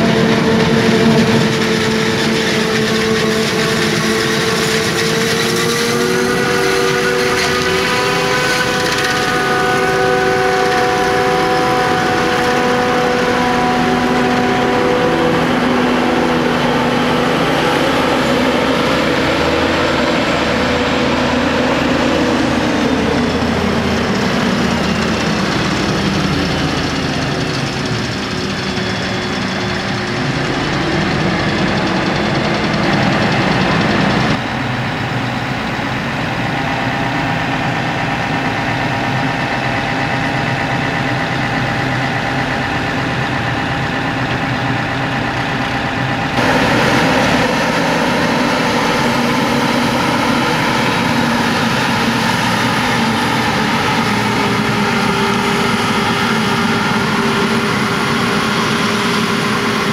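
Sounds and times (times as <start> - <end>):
forage harvester chopping: 0.0 - 18.2
diesel tractors running: 0.0 - 59.9.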